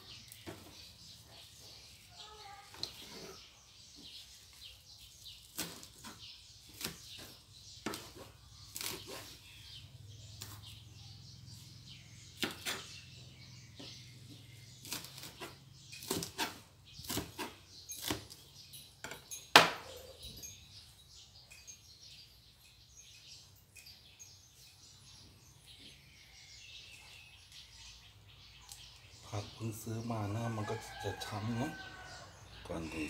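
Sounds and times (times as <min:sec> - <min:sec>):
knife chopping lettuce on cutting board: 0:05.6 - 0:09.3.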